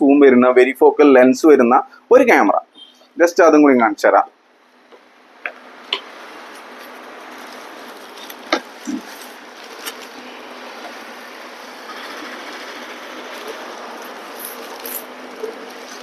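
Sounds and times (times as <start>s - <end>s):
steady hiss: 5.6s - 16.0s
cardboard and plastic rustling: 6.0s - 16.0s.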